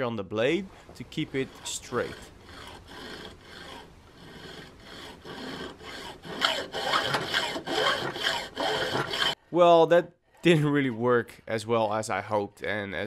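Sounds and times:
hacksaw cutting metal: 1.0 - 9.4.

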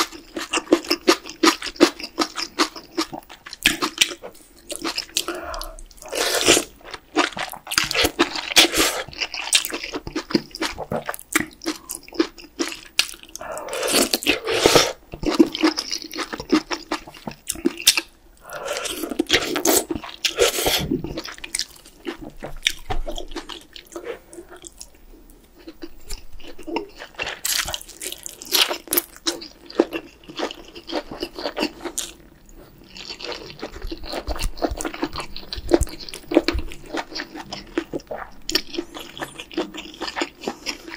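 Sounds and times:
wet chewing: 0.0 - 25.0, 25.6 - 40.9
slurping noodles and broth: 5.2 - 6.7.

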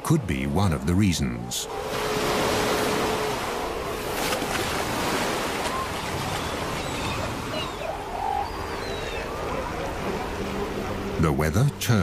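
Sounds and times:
surf from breaking waves: 0.0 - 12.0
faint animal calls: 5.4 - 10.1.

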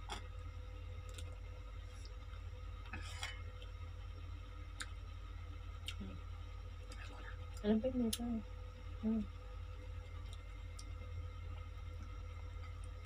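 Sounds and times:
steady low hum: 0.0 - 13.0
faint clicks of chewing: 1.0 - 2.2, 4.7 - 5.0, 5.8 - 6.1, 6.8 - 8.3, 10.1 - 13.0.

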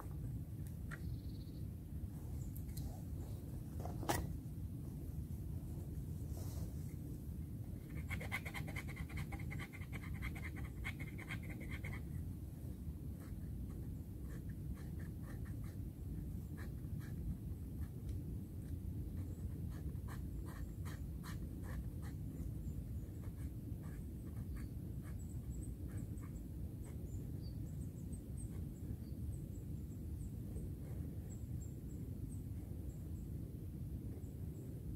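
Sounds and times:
faint high bird chirps: 0.8 - 1.8, 24.4 - 30.4.

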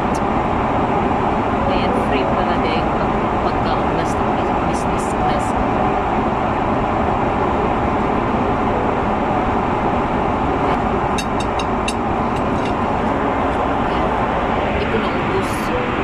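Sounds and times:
airliner engines and airflow roar: 0.0 - 16.0
metal fork clicking on dishes: 11.2 - 12.8.

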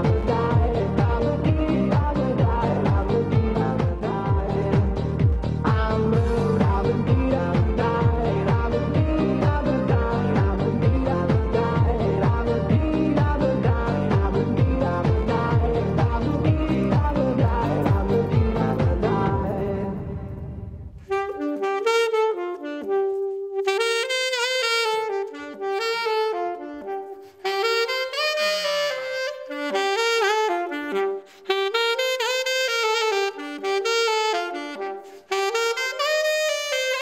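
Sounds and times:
dance track with a beat: 0.0 - 20.0
solo alto saxophone melody: 0.0 - 37.0.

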